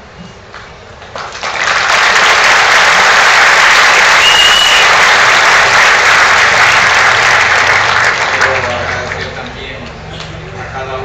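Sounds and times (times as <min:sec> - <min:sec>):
audience applauding: 0:01.1 - 0:09.7.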